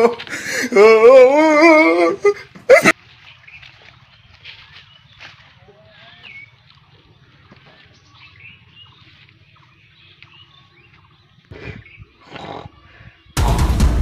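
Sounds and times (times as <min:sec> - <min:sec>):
faint bird chirps: 0:03.1 - 0:13.4
loud music: 0:13.4 - 0:14.0.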